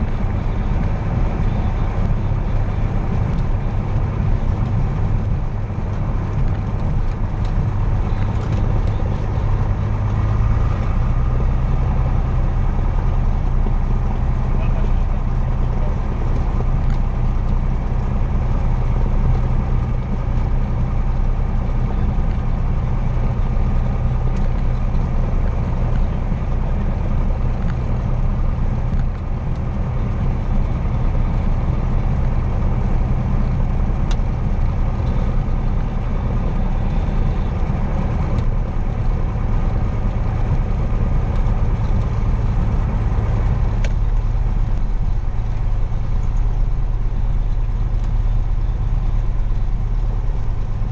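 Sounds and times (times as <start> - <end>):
aircraft engine droning: 0.0 - 50.9.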